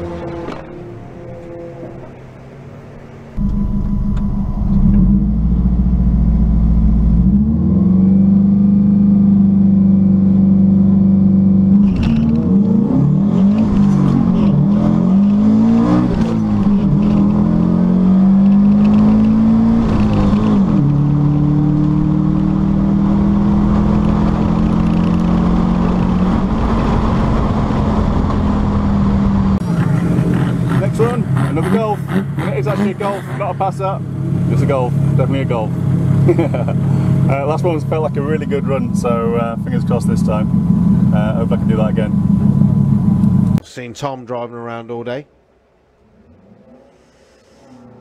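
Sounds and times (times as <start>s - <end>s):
car engine at full throttle: 3.4s - 43.6s.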